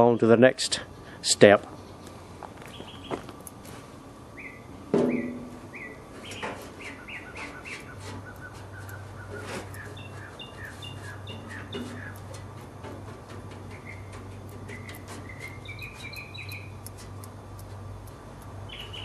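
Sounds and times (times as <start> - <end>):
low steady hum: 0.0 - 19.0
bird chirping: 1.8 - 3.3, 4.4 - 12.3, 13.7 - 16.9, 18.6 - 19.0
higher bird chirp: 2.7 - 3.3, 4.4 - 12.3, 14.7 - 16.8, 18.7 - 19.0.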